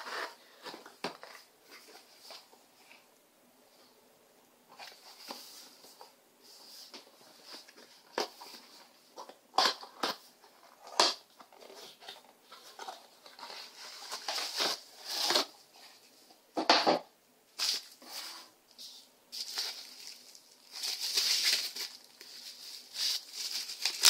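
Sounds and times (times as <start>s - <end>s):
cardboard sliding and scraping: 0.0s - 2.4s
bubble wrap crinkling: 19.3s - 24.0s.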